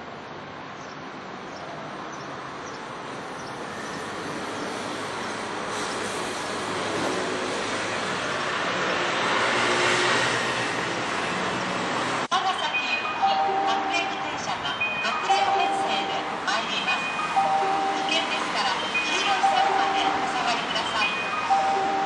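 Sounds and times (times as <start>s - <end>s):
electric train approaching: 3.2s - 22.0s.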